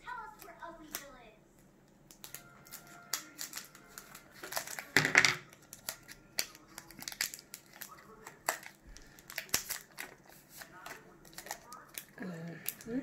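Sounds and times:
scissors snipping wrapper: 2.1s - 4.9s, 5.5s - 12.9s
foil wrapper crinkling: 2.1s - 13.0s.

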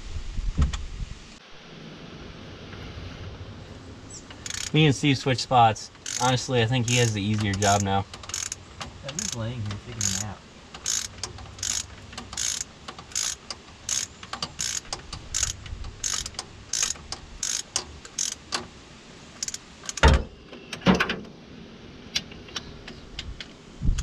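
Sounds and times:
ratchet wrench clicking: 4.3s - 4.8s, 5.9s - 18.7s, 19.4s - 20.1s.

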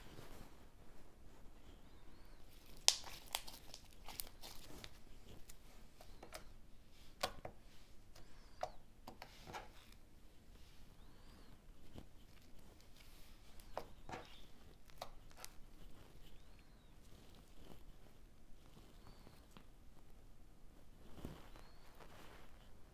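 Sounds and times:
slime kneaded by hand: 2.4s - 10.0s.

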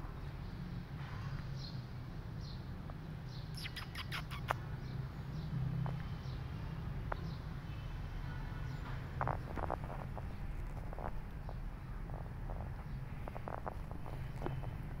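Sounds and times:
small birds chirping: 0.2s - 15.0s
low background rumble: 9.2s - 15.0s.

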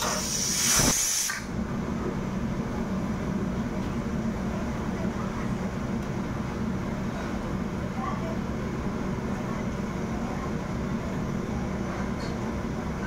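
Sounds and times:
brief hiss: 0.0s - 1.5s
low mechanical hum: 0.0s - 13.0s.

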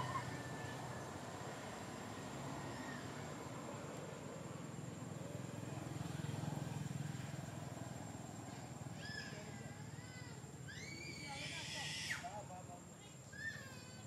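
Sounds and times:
high gliding animal calls: 0.0s - 1.2s, 8.5s - 10.1s, 10.7s - 12.4s
passing vehicle engine rumble: 0.0s - 11.3s.

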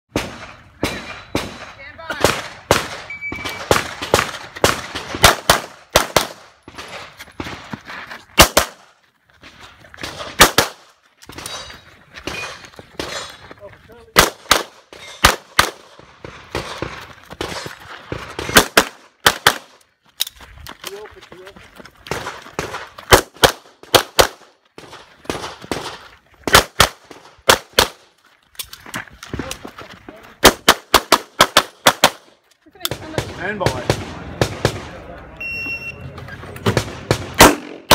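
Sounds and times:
pistol shots: 0.1s - 7.5s, 8.4s - 8.9s, 10.0s - 11.6s, 14.2s - 19.8s, 22.1s - 28.0s, 30.4s - 32.3s, 36.6s - 37.9s
handgun shots: 37.4s - 37.9s.

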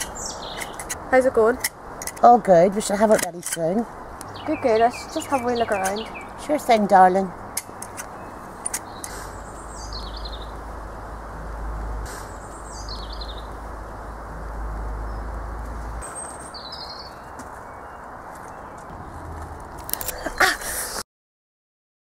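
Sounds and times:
small songbird singing: 0.0s - 10.7s, 12.0s - 19.2s
low background rumble and hiss: 0.0s - 16.0s.

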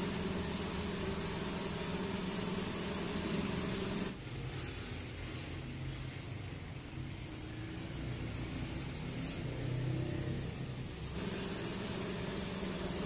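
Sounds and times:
machine hum: 0.0s - 4.2s, 11.0s - 13.0s
welding arc buzzing: 0.0s - 4.2s, 11.1s - 13.0s.

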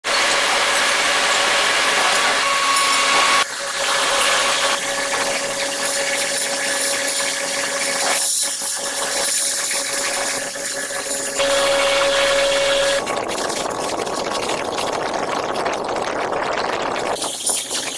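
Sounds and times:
machinery hum: 9.6s - 13.5s.

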